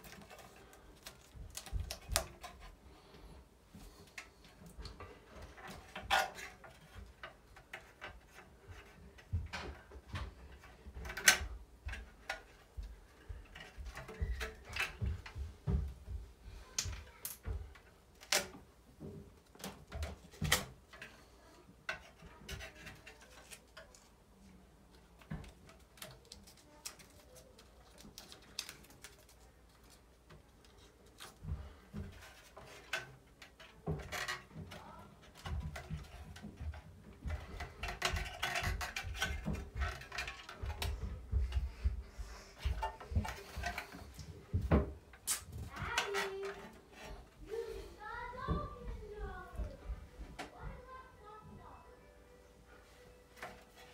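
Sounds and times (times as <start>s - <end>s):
duct tape crinkling: 0.0s - 2.6s, 25.2s - 31.4s, 45.1s - 47.0s.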